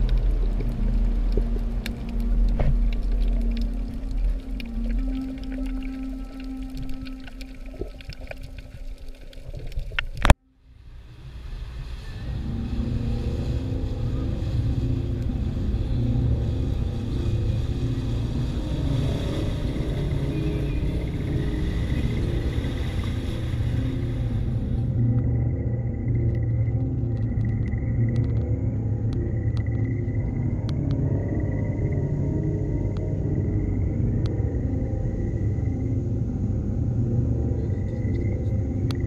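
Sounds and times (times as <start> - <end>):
motor boat engine rumbling: 0.0 - 8.5, 10.2 - 39.0
hull wash on water: 0.0 - 25.4.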